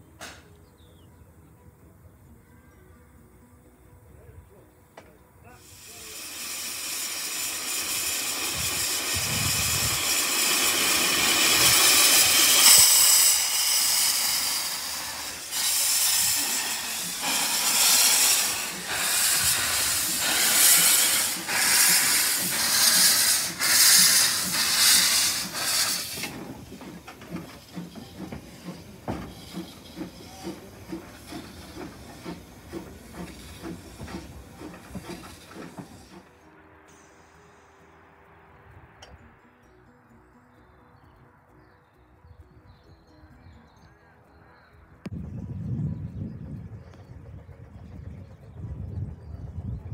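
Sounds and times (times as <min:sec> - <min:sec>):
steam locomotive hissing: 0:05.5 - 0:37.9
steam locomotive chuffing: 0:05.6 - 0:37.5, 0:45.2 - 0:49.9.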